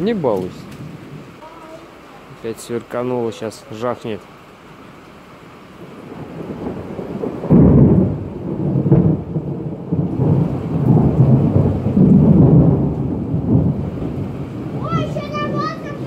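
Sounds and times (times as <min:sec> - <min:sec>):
thunder rumbling and clapping: 0:06.0 - 0:16.0.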